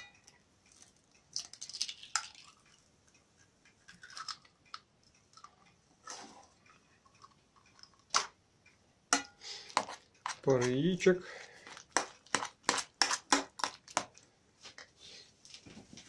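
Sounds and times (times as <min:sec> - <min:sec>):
eggshells cracking: 0:00.7 - 0:02.9
wet squishes of eggs: 0:09.6 - 0:15.0.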